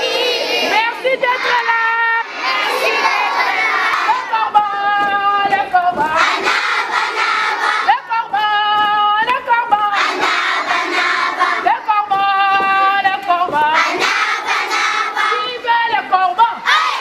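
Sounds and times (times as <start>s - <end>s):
crowd shouting: 0.0s - 4.3s, 16.6s - 17.0s
children singing in unison: 0.0s - 8.0s, 9.9s - 12.0s, 13.0s - 15.7s, 16.6s - 17.0s.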